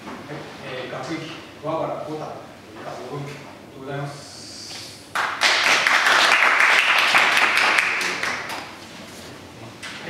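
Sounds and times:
people clapping: 5.1 - 8.8.

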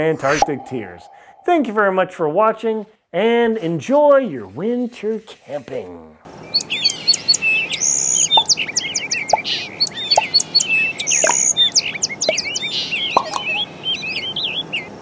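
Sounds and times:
songbirds chirping and trilling: 6.3 - 15.0.

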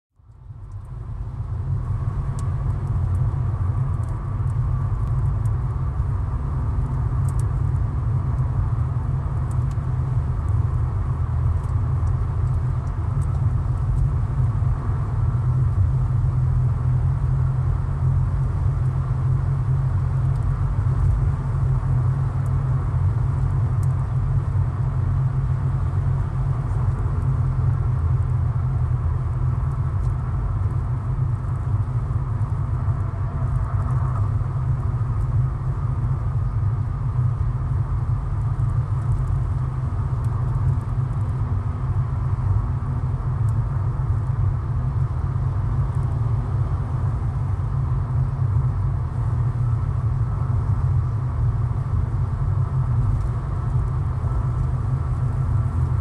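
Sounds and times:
car engine noise: 0.3 - 56.0
faint ticks: 6.8 - 7.5.

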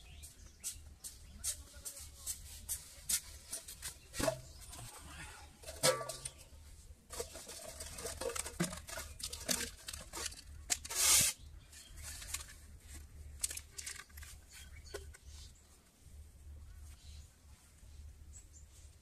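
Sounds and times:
plastic bottles crinkling: 3.6 - 15.2
rustling crackle: 5.6 - 14.8.

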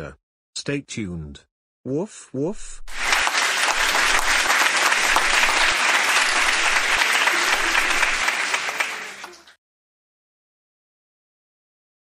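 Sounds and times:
audience applauding: 2.9 - 9.6.

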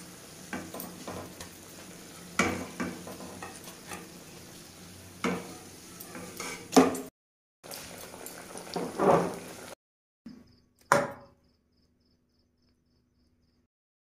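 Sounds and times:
food sizzling in hot oil: 0.0 - 9.8.

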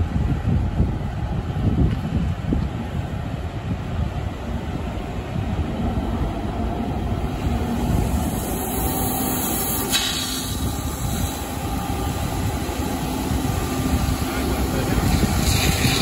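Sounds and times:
water spray hiss: 8.0 - 11.6, 14.5 - 16.0.

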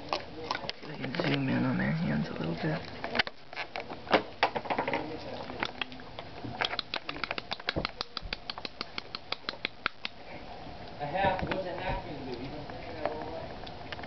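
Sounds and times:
animals crunching dry kibble: 0.0 - 10.2.

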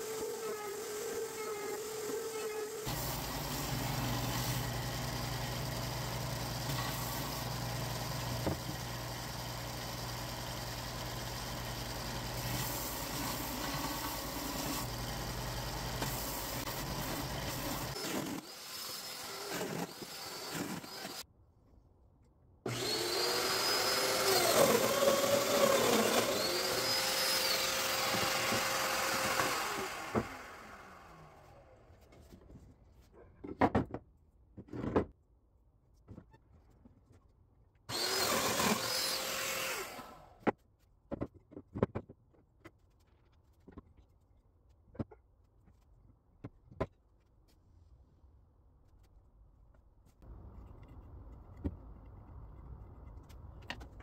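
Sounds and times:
joiner motor cutting wood: 0.0 - 21.2, 22.7 - 31.7, 37.9 - 40.4
belt sander running: 2.8 - 21.2, 22.7 - 31.6, 37.9 - 40.3.

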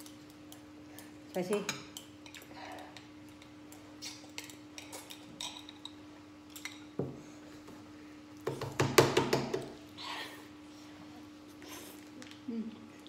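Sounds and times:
faint steady hum: 0.0 - 13.0
utensils clinking on glass bowls: 4.3 - 6.9.

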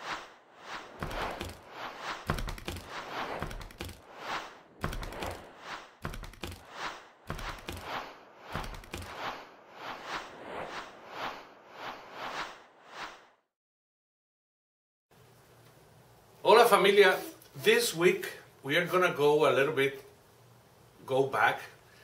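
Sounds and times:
whooshing swells: 0.0 - 13.4.

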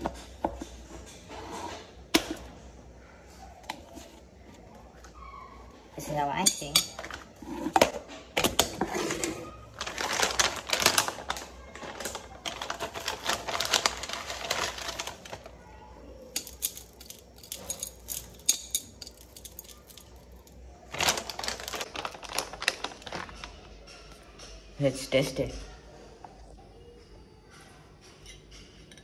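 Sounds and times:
plastic packet crinkling: 9.2 - 15.6, 19.0 - 23.6.

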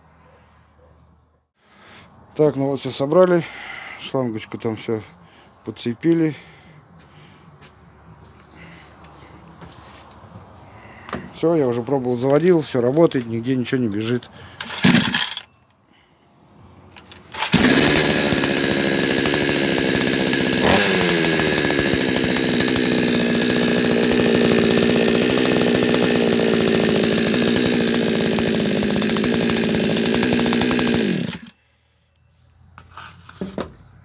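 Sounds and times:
chainsaw click: 14.6 - 15.5, 17.0 - 31.5
chainsaw running: 14.6 - 15.5, 17.0 - 31.6.

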